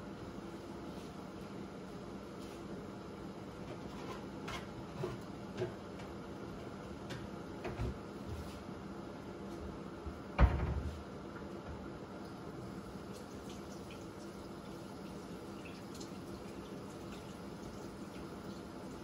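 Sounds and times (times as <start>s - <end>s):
food simmering hiss: 12.1s - 19.0s.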